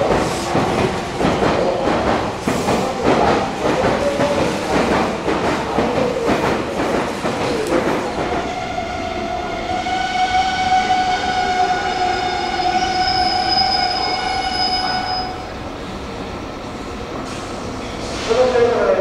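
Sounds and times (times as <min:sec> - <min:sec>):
train running rumble: 0:00.0 - 0:08.8
train wheels squealing: 0:12.1 - 0:15.6.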